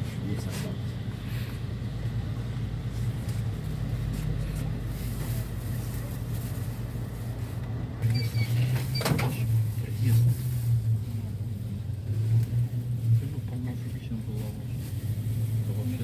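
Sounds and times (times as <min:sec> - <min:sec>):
engine and road drone: 0:00.0 - 0:16.0.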